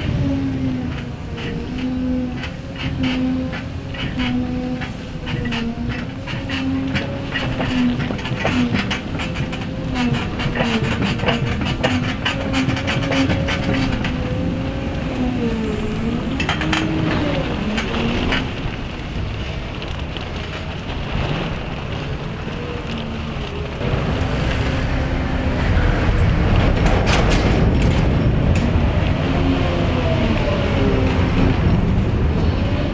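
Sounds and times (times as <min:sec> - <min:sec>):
clanks and knocks: 0:00.0 - 0:15.0, 0:16.3 - 0:22.1, 0:26.0 - 0:29.2
wheel loader engine: 0:00.0 - 0:32.9.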